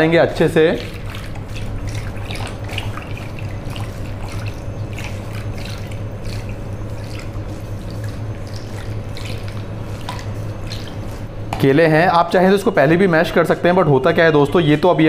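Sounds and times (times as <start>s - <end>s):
churner whisking and splashing milk: 0.0s - 12.6s
steady low hum: 0.0s - 15.0s.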